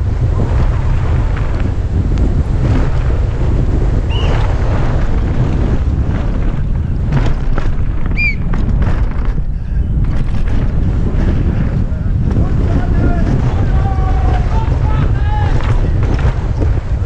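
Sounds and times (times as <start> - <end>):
bike knocking and rattling: 0.0 - 17.0
wind buffeting microphone: 0.0 - 17.0
brief high squeaks: 8.2 - 8.5.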